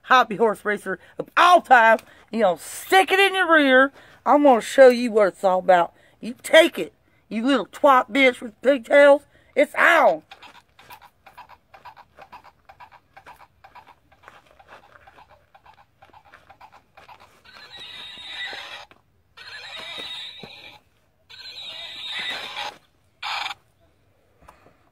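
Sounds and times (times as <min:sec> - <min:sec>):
clip-clop hoofbeats: 0:09.9 - 0:22.8
horse neighing: 0:14.9 - 0:23.6.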